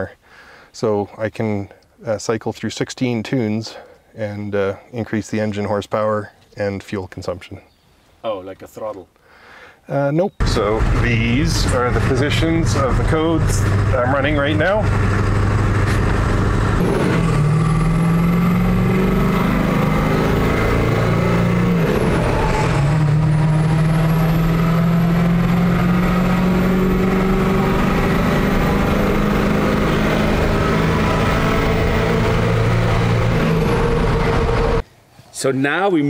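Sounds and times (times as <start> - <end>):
diesel engine accelerating: 10.4 - 34.8.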